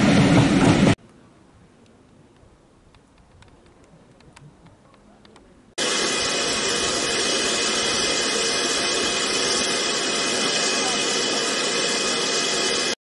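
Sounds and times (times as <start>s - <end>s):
faint clicks: 1.8s - 5.5s
steam locomotive hissing steam: 5.8s - 13.0s.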